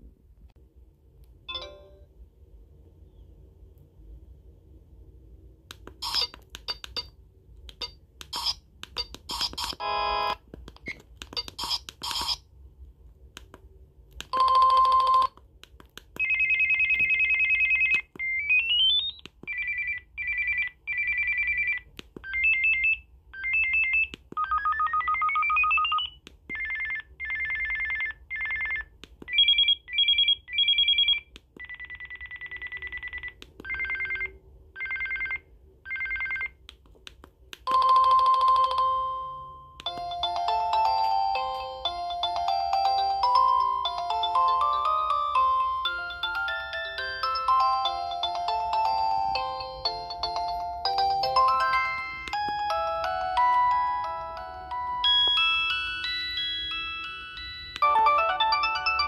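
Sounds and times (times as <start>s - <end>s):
phone ringtone beeps and trills: 1.5s - 2.1s, 8.4s - 10.4s, 14.4s - 15.4s, 16.2s - 36.6s, 37.7s - 59.0s.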